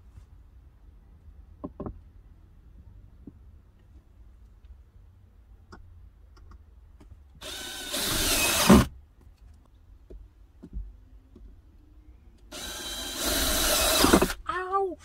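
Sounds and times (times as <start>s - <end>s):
cordless drill driving screws: 7.4s - 8.9s, 12.5s - 14.4s.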